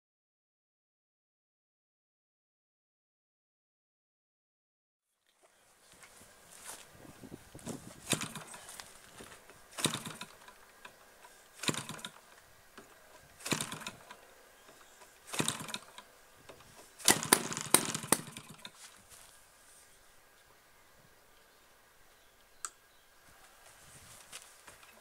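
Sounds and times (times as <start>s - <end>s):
engine popping: 7.6s - 10.6s, 11.6s - 12.2s, 13.4s - 14.2s, 15.2s - 16.0s, 17.0s - 18.8s
two-stroke engine turning over: 7.6s - 18.8s.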